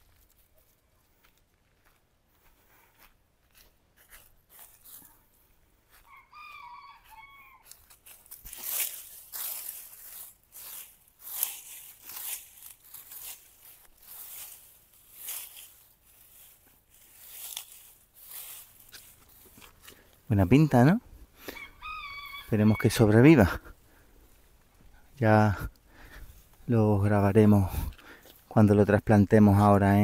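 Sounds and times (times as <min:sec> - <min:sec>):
crunching footsteps: 0:00.0 - 0:30.0
hen calling: 0:06.0 - 0:07.8, 0:21.4 - 0:23.6
rustling: 0:07.6 - 0:20.3.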